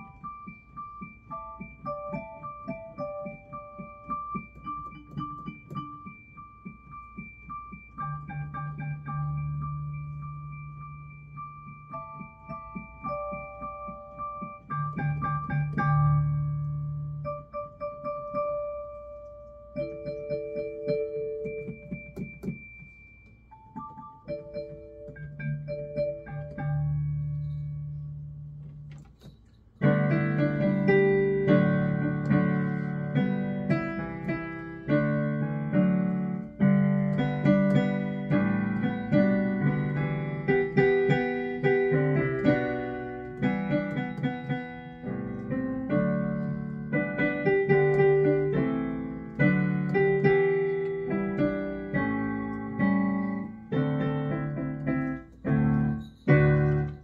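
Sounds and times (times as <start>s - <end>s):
digital piano playing chords: 0.0s - 57.0s.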